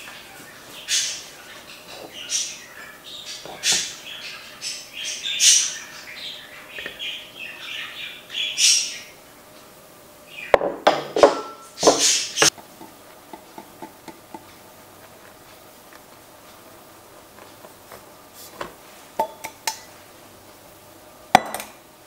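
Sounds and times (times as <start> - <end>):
clatter of dishes knocking: 10.6 - 12.5.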